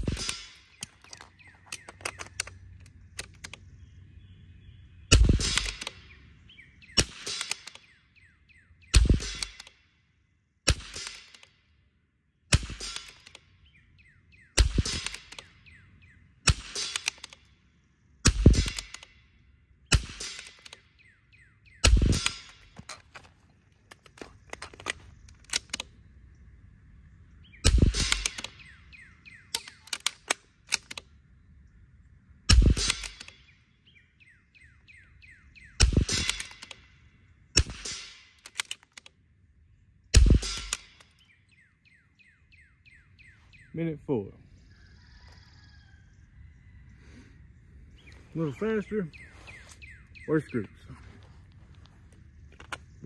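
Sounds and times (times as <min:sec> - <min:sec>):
rifle shots with echo: 0:00.0 - 0:01.0, 0:05.1 - 0:06.2, 0:06.8 - 0:08.0, 0:08.9 - 0:09.8, 0:10.6 - 0:11.6, 0:12.5 - 0:13.4, 0:14.6 - 0:15.7, 0:16.4 - 0:17.5, 0:18.2 - 0:19.3, 0:19.9 - 0:20.9, 0:21.8 - 0:22.8, 0:27.6 - 0:28.8, 0:32.5 - 0:33.6, 0:35.8 - 0:36.9, 0:37.6 - 0:38.8, 0:40.1 - 0:41.2
bird chirping: 0:00.0 - 0:10.0, 0:13.0 - 0:37.6, 0:38.6 - 0:53.0.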